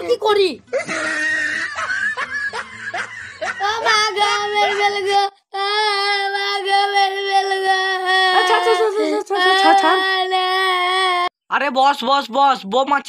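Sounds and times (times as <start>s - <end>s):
child singing long note: 4.6s - 11.3s.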